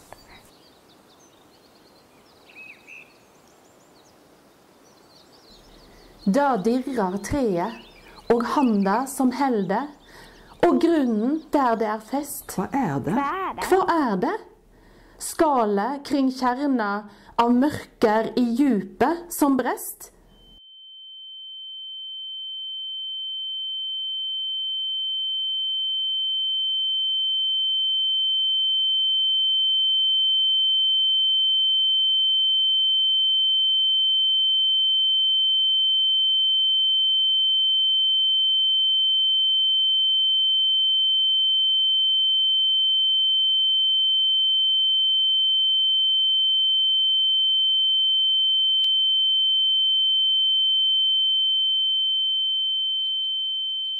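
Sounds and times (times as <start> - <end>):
high-pitched electronic tone: 10.5 - 14.0.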